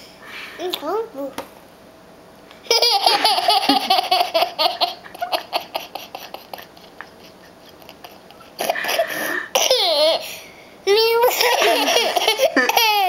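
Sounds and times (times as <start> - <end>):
toddler laughing: 2.7 - 10.2, 11.1 - 13.0.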